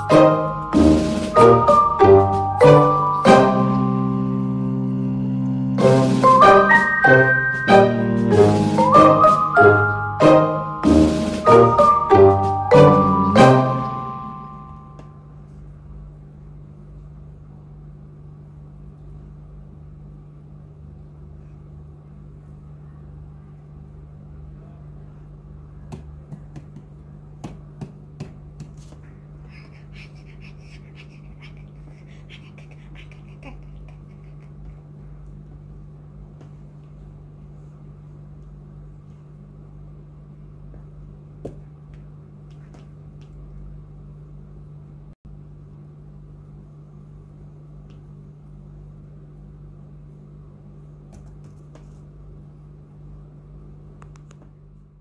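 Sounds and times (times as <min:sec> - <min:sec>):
low room hum: 0:00.0 - 0:55.0.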